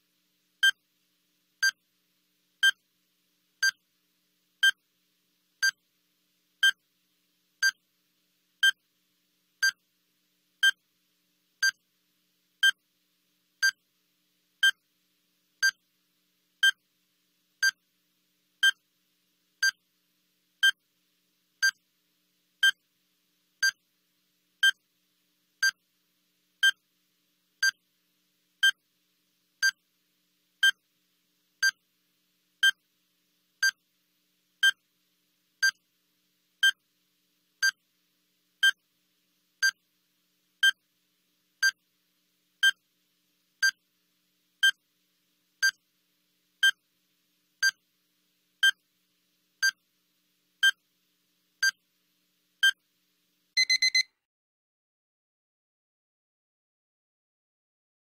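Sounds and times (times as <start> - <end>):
high electronic timer beep: 53.6 - 54.1.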